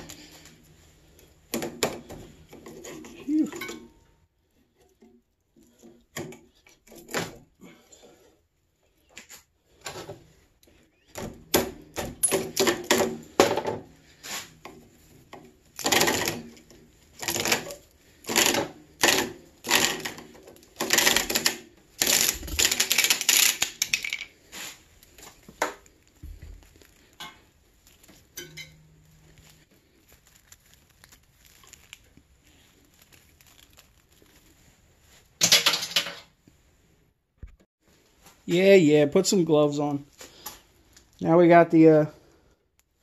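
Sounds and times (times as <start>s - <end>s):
copper wire scraping and rattling: 11.9s - 36.4s.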